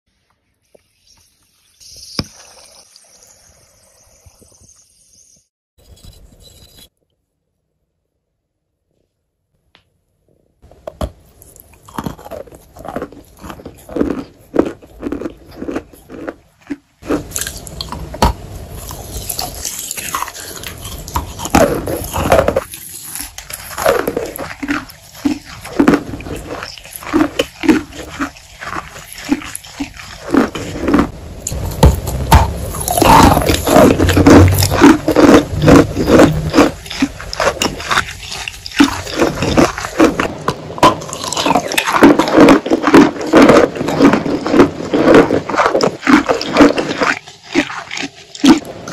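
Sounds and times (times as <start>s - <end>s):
wet crunchy chewing: 11.0s - 48.9s.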